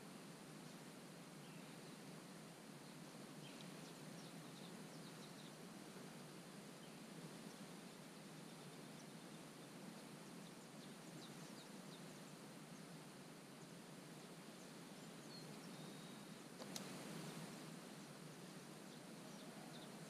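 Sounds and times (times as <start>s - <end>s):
faint outdoor hiss: 0.0s - 20.0s
sharp click: 16.6s - 16.9s.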